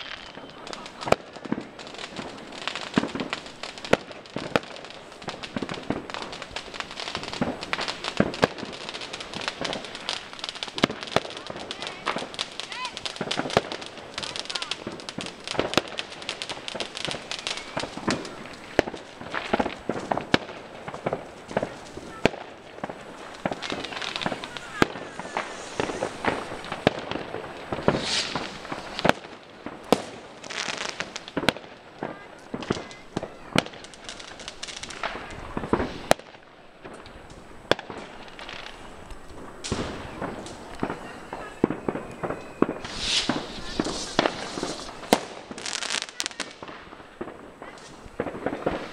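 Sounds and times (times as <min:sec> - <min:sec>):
fireworks bangs and crackles: 0:00.0 - 0:48.9.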